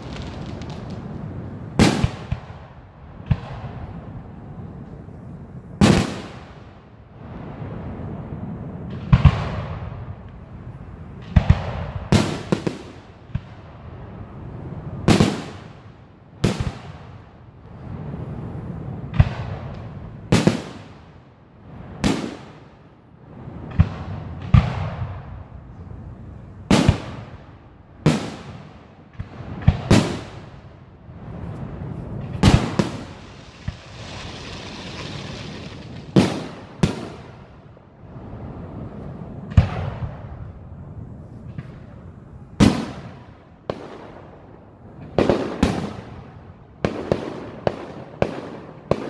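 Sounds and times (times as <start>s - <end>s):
fireworks bangs: 0.0s - 4.3s, 5.8s - 7.8s, 11.1s - 13.8s, 15.0s - 18.2s, 19.0s - 21.2s, 21.8s - 22.7s, 26.6s - 38.2s, 42.6s - 44.4s
low rolling rumble: 31.1s - 38.4s.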